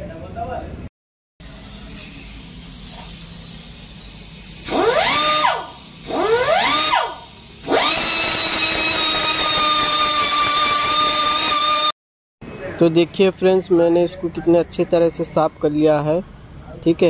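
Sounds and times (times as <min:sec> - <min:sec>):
air buffing tool whining: 0:04.6 - 0:11.9.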